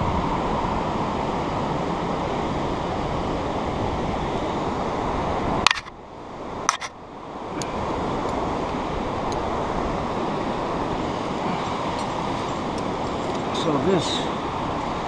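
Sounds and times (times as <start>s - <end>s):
carabiner and rope clicks: 5.7s - 5.9s, 6.7s - 6.9s.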